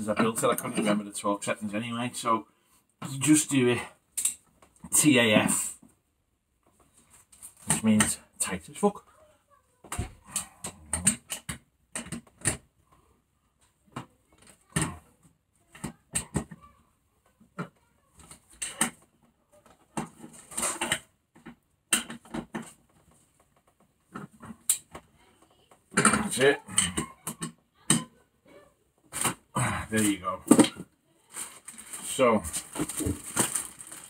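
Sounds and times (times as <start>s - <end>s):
plastic wrapping crinkling: 31.2s - 34.0s.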